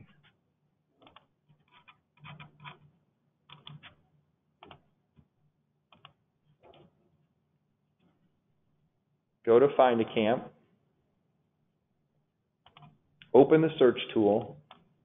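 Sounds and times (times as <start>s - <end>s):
faint keyboard typing: 1.0s - 4.0s, 5.9s - 6.9s, 12.6s - 13.0s.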